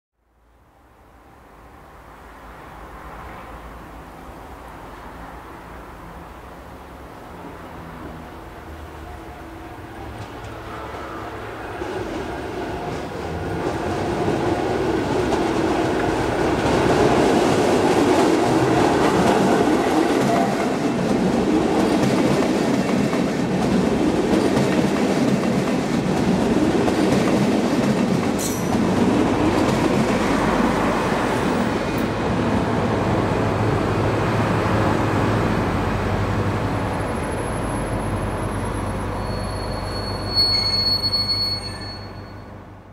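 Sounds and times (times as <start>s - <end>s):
train wheel and rail rumble: 0.9s - 42.9s
diesel locomotive drone: 1.0s - 42.9s
high wheel squeal: 37.0s - 42.7s.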